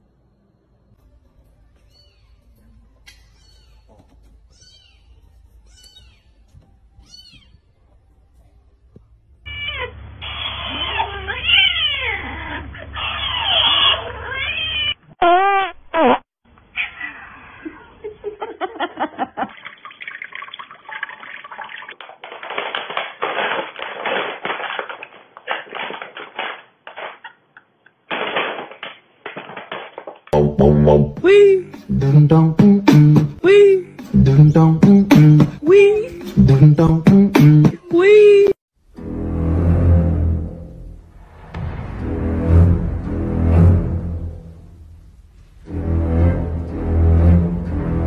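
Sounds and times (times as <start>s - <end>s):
cat meowing: 7.0s - 7.5s, 9.5s - 15.0s, 16.7s - 17.7s
tap water running and splashing: 19.5s - 22.4s
paper bag crinkling: 22.0s - 27.4s, 28.1s - 30.3s.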